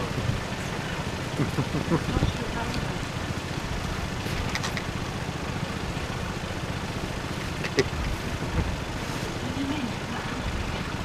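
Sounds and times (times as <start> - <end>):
van engine idling: 0.0 - 11.0.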